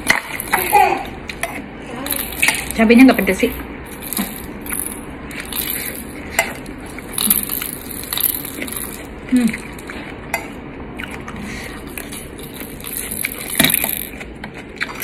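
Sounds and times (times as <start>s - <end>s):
chewing: 4.0s - 15.0s.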